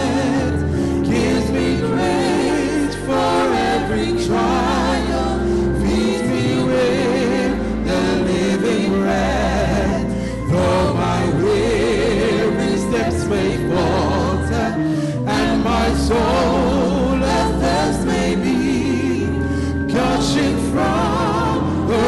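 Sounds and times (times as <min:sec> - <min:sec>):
congregation singing: 0:00.0 - 0:22.0.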